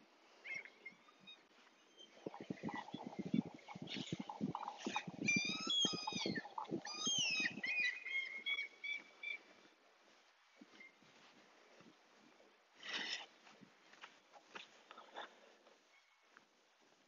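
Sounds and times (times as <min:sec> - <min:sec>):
bird calling: 0:00.4 - 0:09.5.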